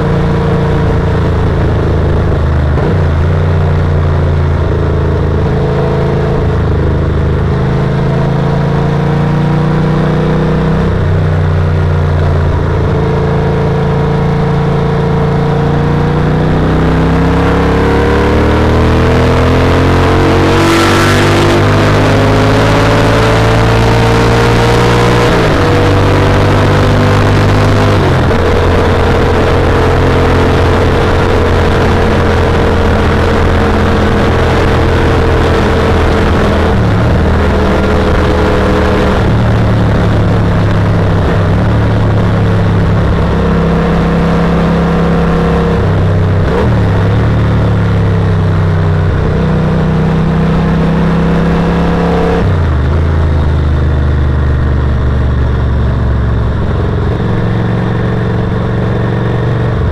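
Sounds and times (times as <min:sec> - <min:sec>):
motorcycle engine accelerating: 0:00.0 - 0:59.9
wind and road noise: 0:00.0 - 0:59.9.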